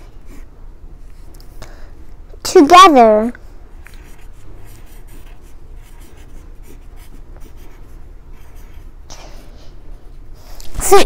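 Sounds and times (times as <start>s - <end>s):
pencil writing on paper: 3.9s - 8.9s.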